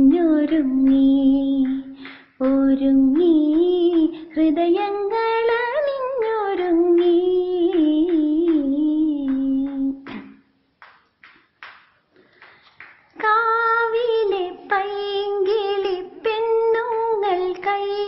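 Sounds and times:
woman singing: 0.0 - 10.3, 13.2 - 18.0
faint breaths: 1.8 - 2.4, 12.1 - 12.9.

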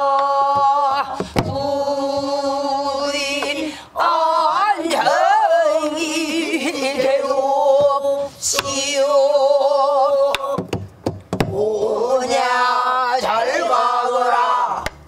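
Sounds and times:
group singing in unison: 0.0 - 10.8, 11.4 - 15.0
barrel drum knocks: 10.6 - 11.6.

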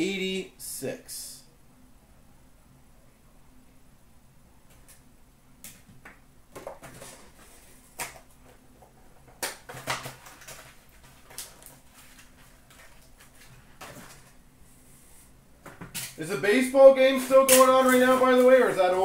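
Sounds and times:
light rustling of packaging: 6.6 - 15.4, 17.0 - 19.0.

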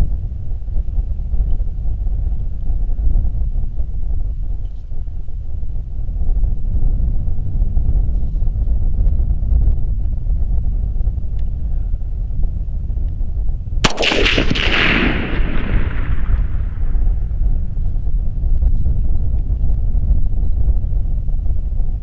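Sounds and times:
steady low rumble: 1.9 - 22.0
rifle shot with rolling echo: 13.8 - 17.8.

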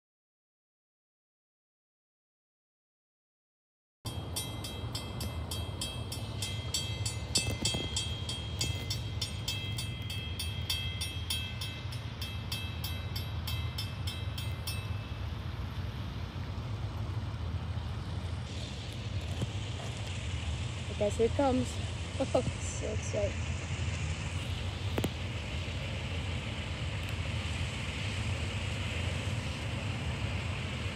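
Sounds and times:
crossing bell ringing: 4.1 - 16.1.

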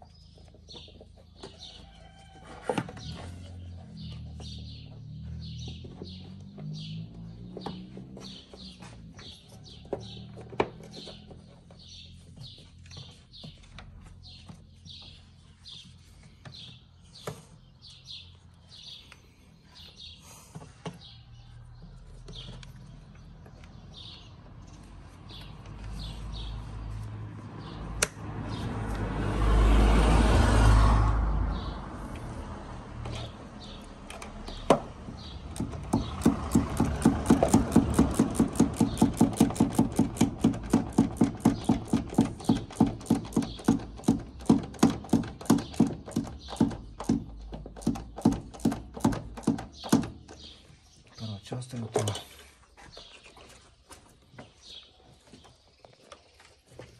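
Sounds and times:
birds chirping: 0.0 - 28.8, 31.4 - 56.9
rapid even clicking: 35.5 - 50.4.

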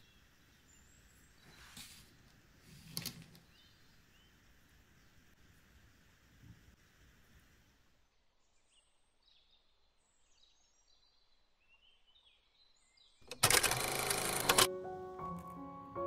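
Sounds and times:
piano music: 13.6 - 16.0.

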